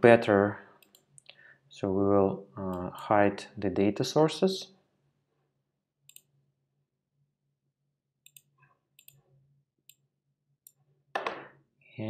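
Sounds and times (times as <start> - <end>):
person breathing: 0.5 - 1.7
computer mouse clicks: 6.1 - 6.3.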